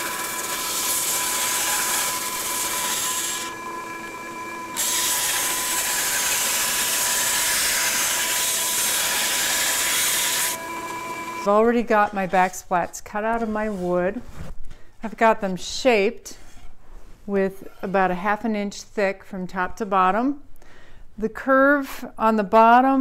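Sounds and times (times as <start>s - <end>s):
bandsaw hum and whine: 0.0s - 11.5s.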